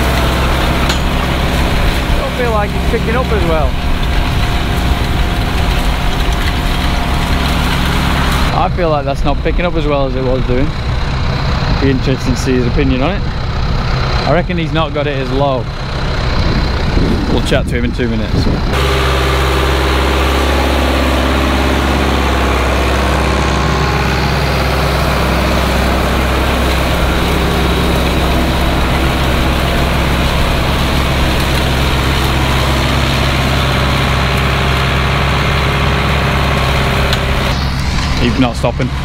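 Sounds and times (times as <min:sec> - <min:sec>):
tractor engine humming steadily: 0:00.0 - 0:39.0.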